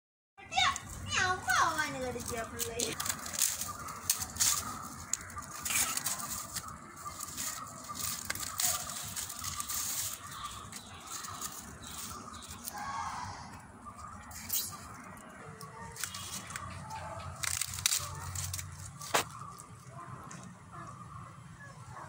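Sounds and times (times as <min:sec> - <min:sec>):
dry maize stalks rustling: 0:00.5 - 0:12.8, 0:14.0 - 0:20.4.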